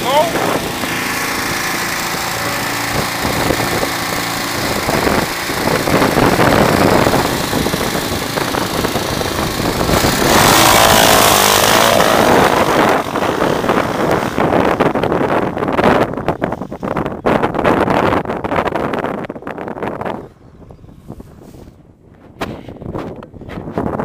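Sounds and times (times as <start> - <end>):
motorcycle engine revving: 0.0 - 16.4.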